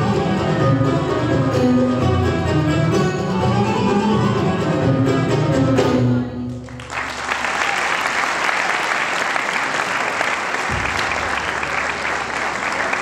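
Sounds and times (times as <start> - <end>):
audience applause: 6.6 - 13.0.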